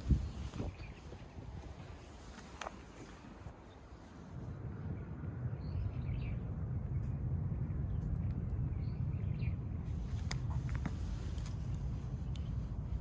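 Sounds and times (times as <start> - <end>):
small birds chirping: 0.0 - 4.1, 5.0 - 13.0
steady low rumble: 0.0 - 13.0.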